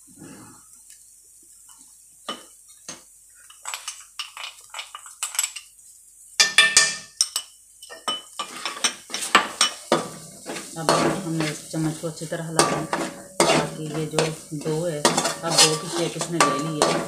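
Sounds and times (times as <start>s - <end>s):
metal spoon scraping a metal pan: 8.4s - 17.0s.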